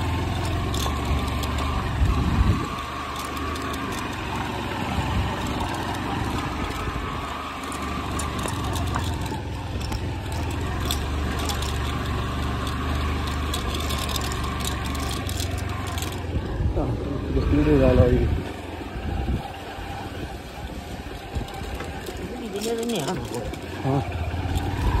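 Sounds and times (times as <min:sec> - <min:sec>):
motorcycle engine at low revs: 0:00.0 - 0:25.0.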